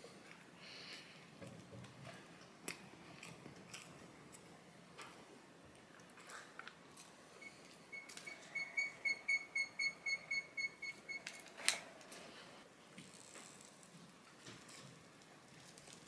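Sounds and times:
faint chewing: 0.1s - 7.1s
short high electronic beeps: 7.4s - 11.2s.

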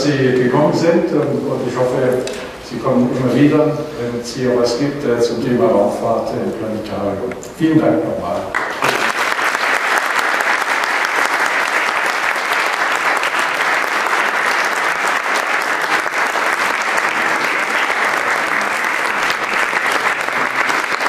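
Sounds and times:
audience applauding: 8.5s - 21.0s.

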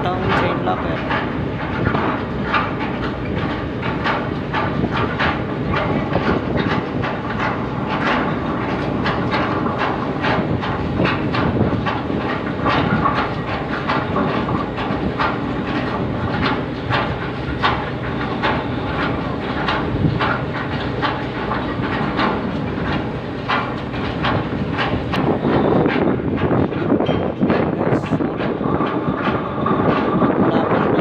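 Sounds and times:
low hum of machinery: 0.0s - 31.0s.

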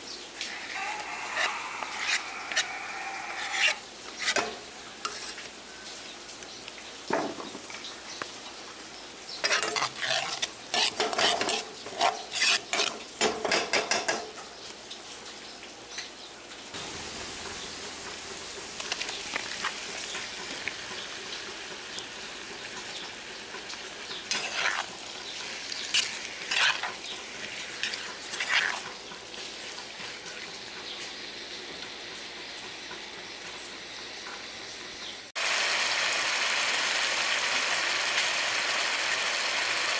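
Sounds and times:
food sizzling in oil: 0.0s - 6.2s, 9.3s - 14.4s, 16.7s - 32.8s, 35.3s - 39.9s
wooden spatula scraping a wok: 0.8s - 5.6s, 9.4s - 13.0s, 24.1s - 30.5s.

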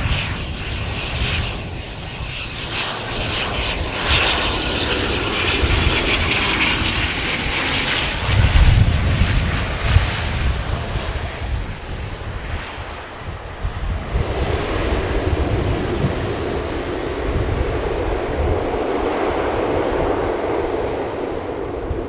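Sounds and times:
propeller drone: 0.0s - 22.0s
turboprop engines whining: 0.0s - 22.0s
low rumble: 7.4s - 22.0s.

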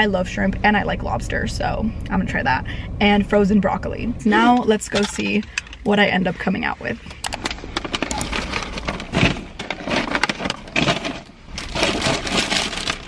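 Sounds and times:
paper bags rustling and crinkling: 7.1s - 13.0s.

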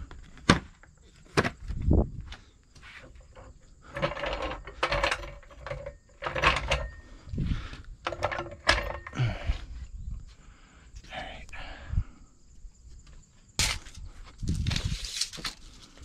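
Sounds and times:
metal clanks and scrapes of floor jack: 2.8s - 7.2s, 8.1s - 9.4s.

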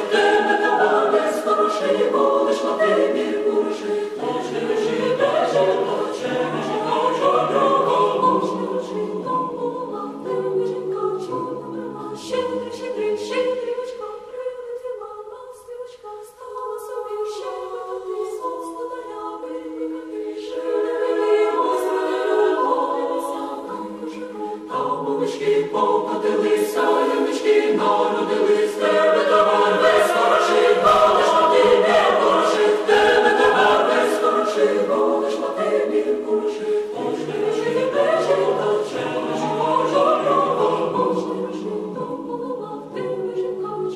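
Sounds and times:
choir singing a cappella: 0.0s - 43.9s.

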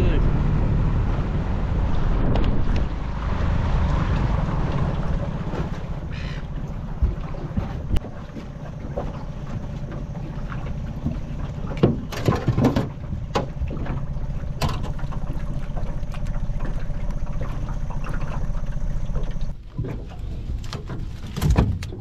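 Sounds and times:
steady low rumble: 0.0s - 12.1s.

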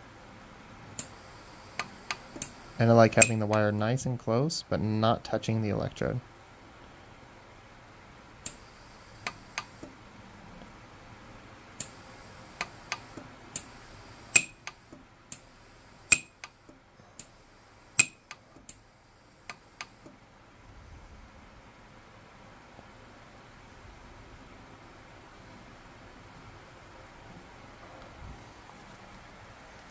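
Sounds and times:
faint high welder whine: 0.8s - 4.2s, 6.1s - 10.4s, 11.7s - 20.2s
welder pulse snaps: 1.0s - 2.6s, 12.6s - 16.6s, 17.2s - 18.8s.

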